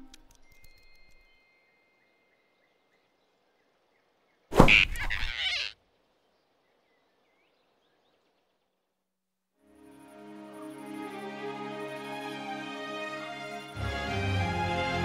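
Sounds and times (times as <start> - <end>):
cartoon whoosh and thump: 4.5 - 5.4.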